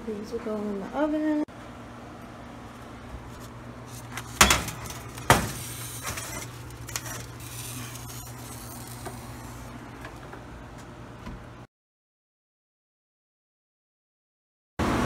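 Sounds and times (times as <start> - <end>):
metal pan clanking on oven rack: 4.4 - 6.4.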